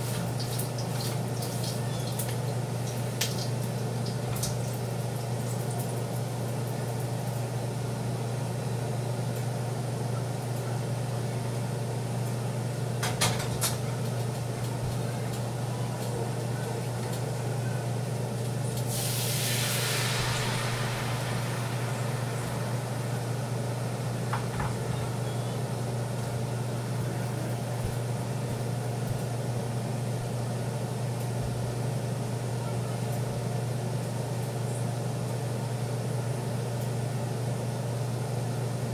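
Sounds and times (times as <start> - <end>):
batter sizzling in a hot pan: 0.0 - 6.6, 18.8 - 24.1
steady low hum: 0.0 - 38.9.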